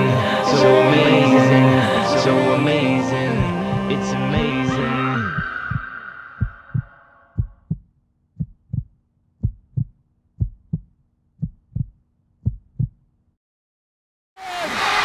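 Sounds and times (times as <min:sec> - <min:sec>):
song: 0:00.0 - 0:06.8
heartbeat double thumps: 0:05.3 - 0:13.0.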